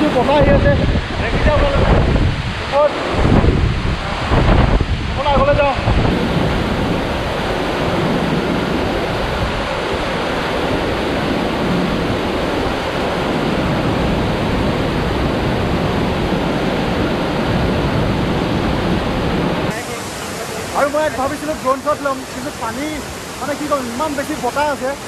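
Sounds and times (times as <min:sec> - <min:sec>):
wind rumble on microphone: 0:00.0 - 0:19.8
waterfall roar: 0:00.0 - 0:25.0.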